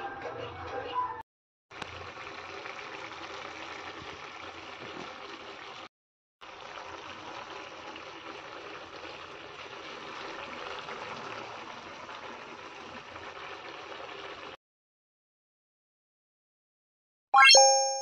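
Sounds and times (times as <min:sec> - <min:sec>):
thick lentils bubbling and popping: 0:01.7 - 0:14.6.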